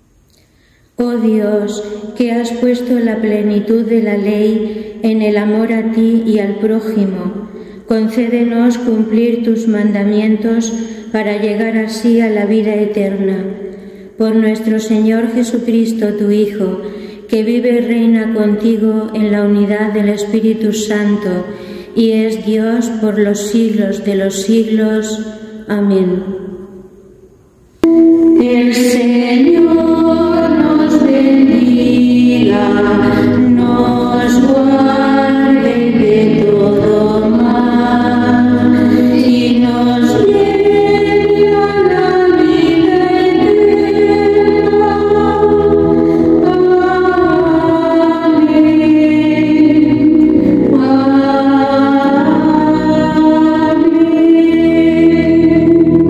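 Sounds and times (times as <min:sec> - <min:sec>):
sustained keyboard chords: 0:27.8 - 0:56.0
women's choir singing: 0:27.8 - 0:56.0.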